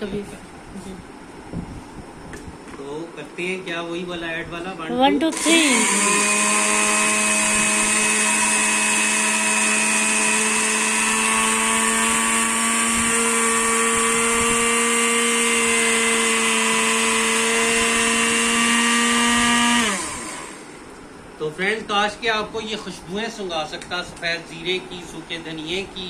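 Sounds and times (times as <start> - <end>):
spice grinder motor whine: 5.3 - 20.9.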